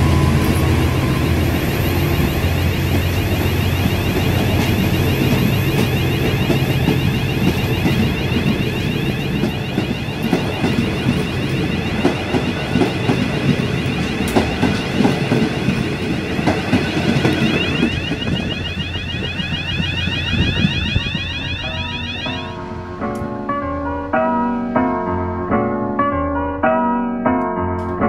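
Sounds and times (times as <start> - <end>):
train wheels rumbling on rails: 0.0 - 22.2.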